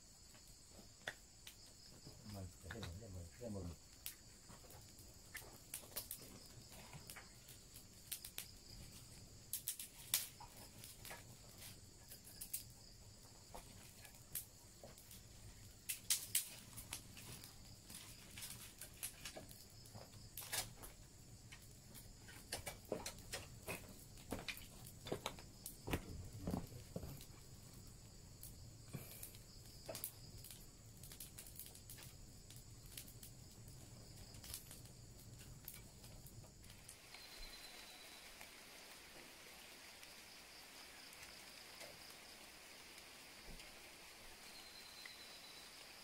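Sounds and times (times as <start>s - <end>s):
insect drone: 0.0s - 46.0s
wood fire crackling: 0.0s - 46.0s.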